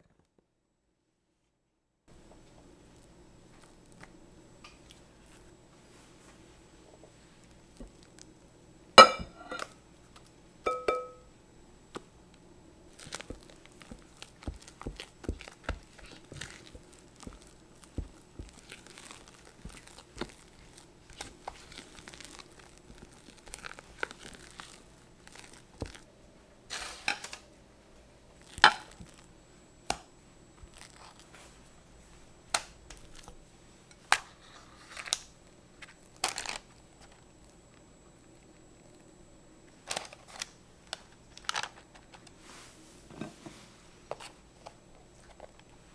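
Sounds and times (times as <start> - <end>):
clinks on glass bowl: 10.7 - 11.2
paper crinkling: 12.9 - 26.0, 30.6 - 31.6, 34.2 - 37.3.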